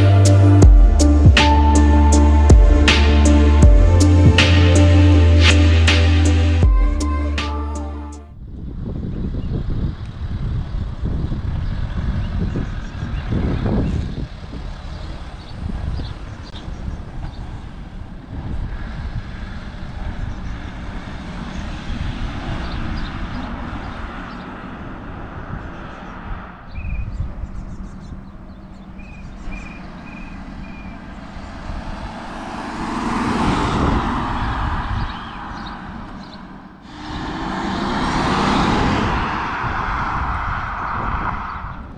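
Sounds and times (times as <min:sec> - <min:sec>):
diesel car engine passing: 0:00.0 - 0:08.3, 0:10.3 - 0:41.9
steady low rumble: 0:00.0 - 0:09.2.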